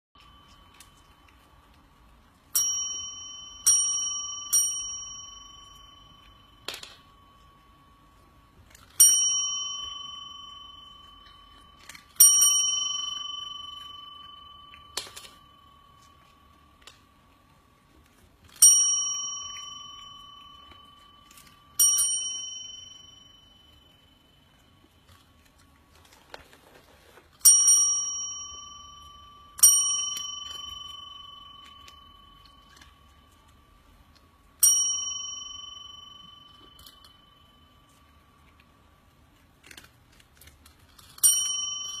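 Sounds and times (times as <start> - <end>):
small metal bell ringing: 0.2 - 26.3, 27.4 - 39.1, 40.9 - 42.0.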